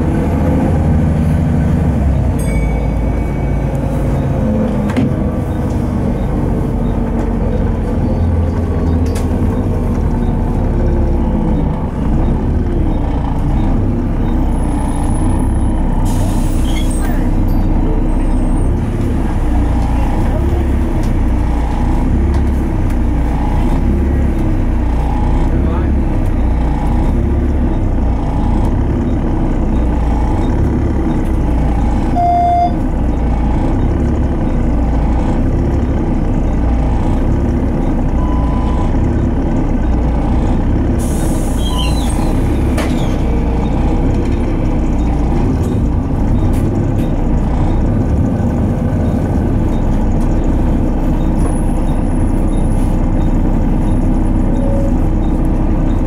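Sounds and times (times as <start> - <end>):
bus diesel engine idling: 0.0 - 56.0
short beep: 2.4 - 4.4, 32.1 - 32.8, 38.2 - 38.9, 52.5 - 56.0.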